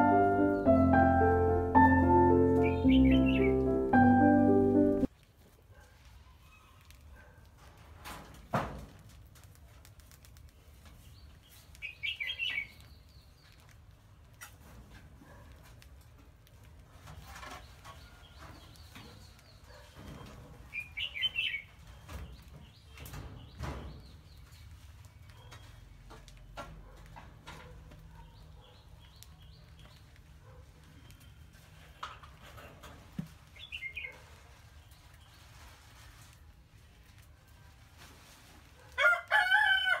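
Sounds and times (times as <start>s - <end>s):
mice scurrying on sand: 8.8s - 21.0s.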